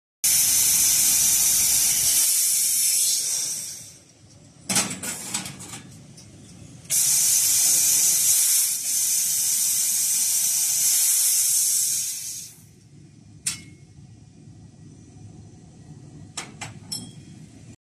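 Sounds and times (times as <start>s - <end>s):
laser cutter gas jet hissing: 0.2s - 4.1s, 6.9s - 12.8s.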